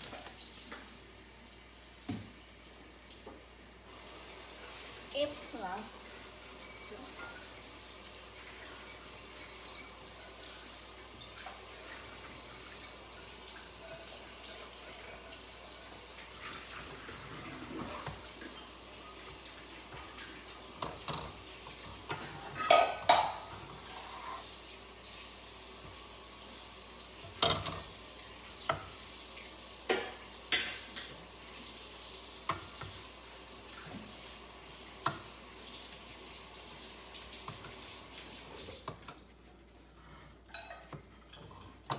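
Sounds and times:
food frying in a pan: 0.0s - 41.9s
spatula scraping a pan: 20.8s - 24.5s.

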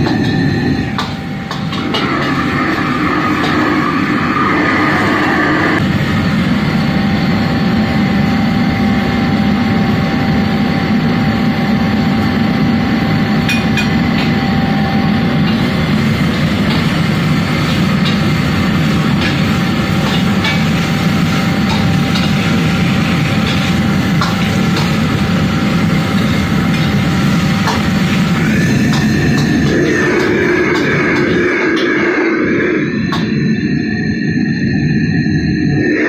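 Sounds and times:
gas burner roaring: 0.0s - 36.0s
vegetables sizzling in wok: 15.3s - 30.9s.

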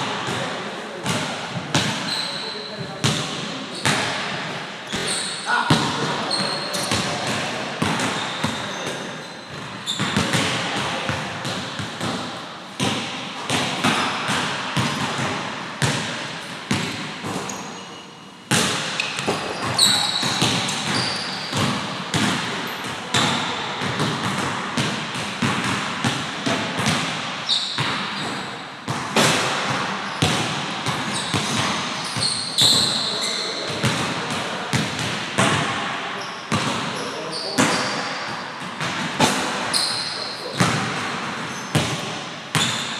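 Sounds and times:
basketballs bouncing on wood floor: 0.0s - 17.9s, 18.5s - 35.9s, 36.5s - 42.9s
sneakers squeaking on floor: 0.2s - 42.9s.

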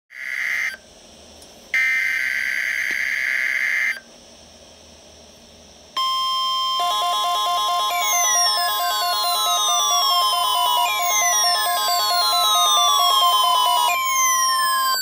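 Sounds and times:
steady warning alarm tone: 6.0s - 15.0s
fast warbling electronic alert tone: 6.1s - 15.0s.

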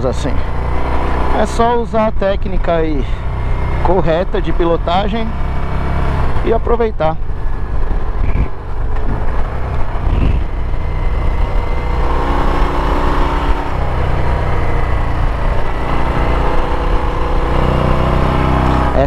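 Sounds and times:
motorcycle engine running: 0.0s - 19.0s
road and wind noise: 0.0s - 19.0s.

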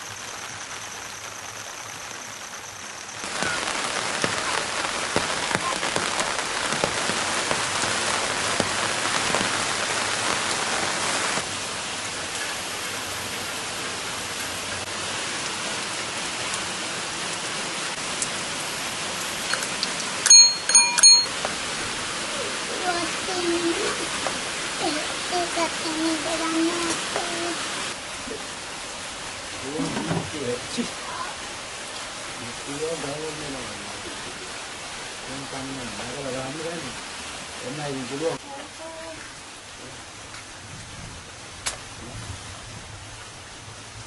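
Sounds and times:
steady rain with pattering drops: 0.0s - 44.0s.

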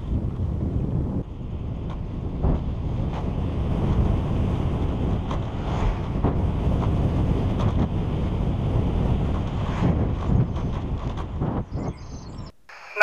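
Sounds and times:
wind buffeting microphone: 0.0s - 12.5s
bicycle knocks and rattles: 1.7s - 11.6s.

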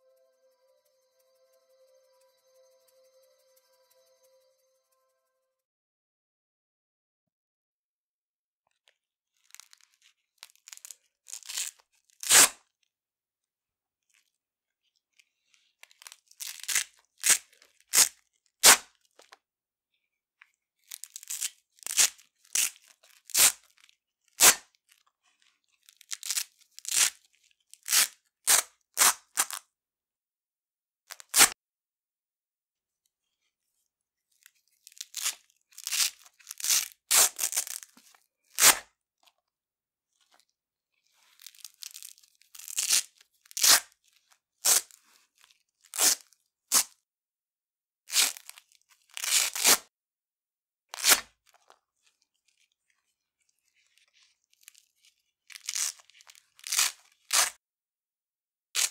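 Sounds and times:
velcro ripping: 10.6s - 12.6s, 16.4s - 18.8s, 21.0s - 23.7s, 24.4s - 24.7s, 26.0s - 27.2s, 27.8s - 29.6s, 31.1s - 31.5s, 34.8s - 38.9s, 41.2s - 44.0s, 44.6s - 45.0s, 45.9s - 46.9s, 48.1s - 49.9s, 50.9s - 51.3s, 55.5s - 57.6s.

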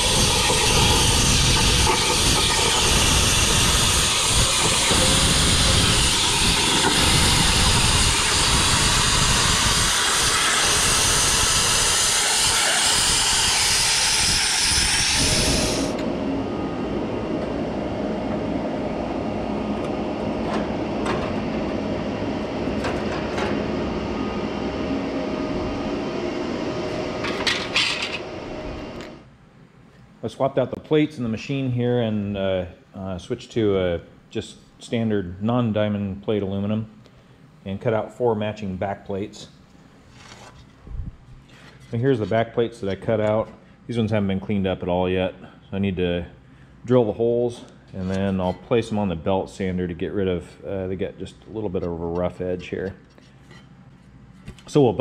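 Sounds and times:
plasma cutter hissing: 0.0s - 16.0s.

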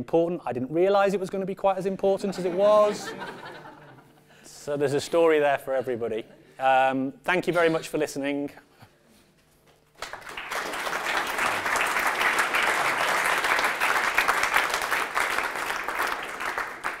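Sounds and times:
people applauding: 10.0s - 17.0s.

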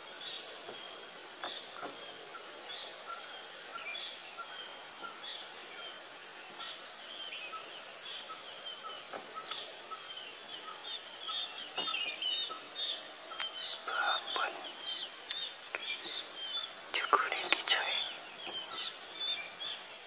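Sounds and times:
high-pitched insect trill: 0.0s - 20.0s
small birds chirping: 0.0s - 20.0s
faint ticks: 9.1s - 9.7s, 10.5s - 10.8s, 13.3s - 18.9s.

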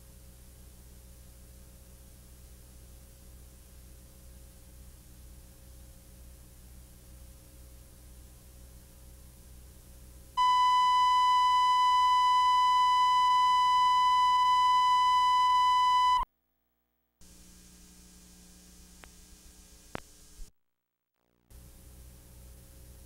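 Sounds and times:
faint tape hum: 10.3s - 20.5s
high-pitched test tone beep: 10.4s - 16.3s.

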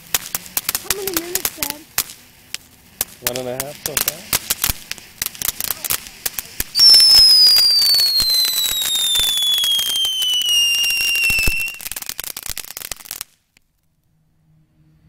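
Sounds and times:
firework crackling: 0.0s - 13.8s
firework whistle falling: 6.7s - 13.2s.

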